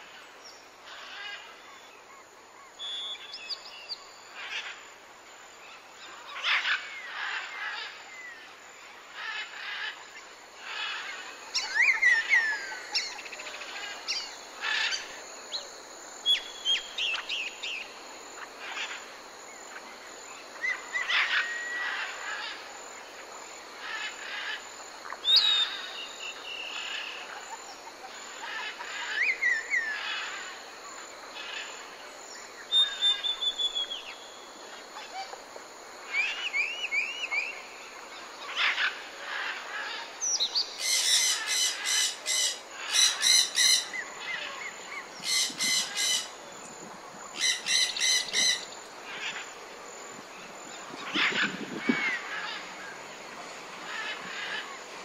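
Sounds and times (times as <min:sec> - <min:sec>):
songbirds chirping and whistling: 0:02.6 - 0:04.6, 0:10.6 - 0:19.0, 0:25.2 - 0:30.4, 0:32.4 - 0:35.4, 0:36.1 - 0:37.8, 0:38.4 - 0:49.5
harsh repeated bird calls: 0:39.5 - 0:44.4, 0:45.0 - 0:46.4, 0:47.4 - 0:49.4.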